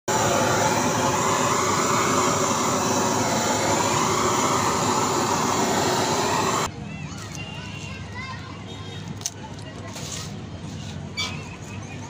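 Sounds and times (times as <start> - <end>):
blowtorch flame hissing: 0.1 - 6.7.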